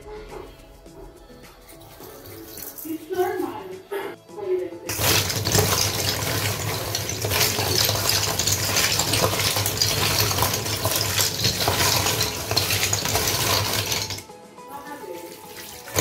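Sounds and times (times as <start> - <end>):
seashells clicking and clattering: 4.9 - 14.2
water sloshing: 15.1 - 16.0.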